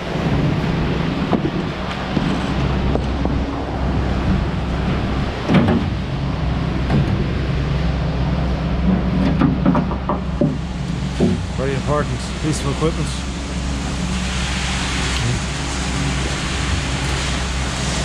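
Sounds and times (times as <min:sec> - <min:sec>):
truck engine running: 0:00.0 - 0:18.0.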